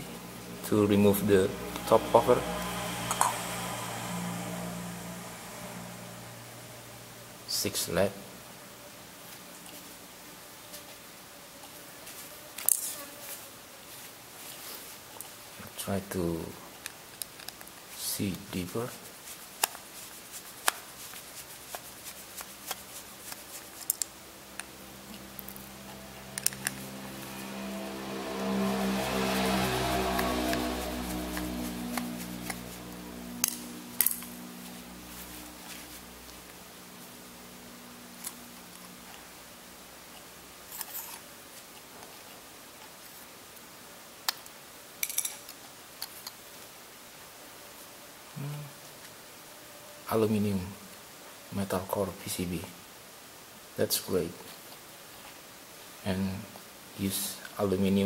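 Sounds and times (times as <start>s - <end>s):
background music: 0.0s - 7.5s, 24.3s - 35.8s.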